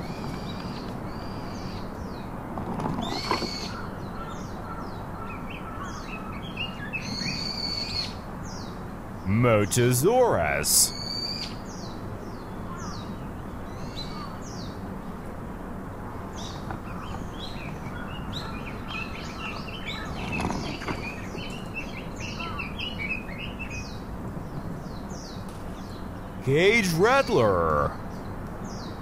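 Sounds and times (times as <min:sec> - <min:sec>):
steady background hiss: 0:08.7 - 0:12.4.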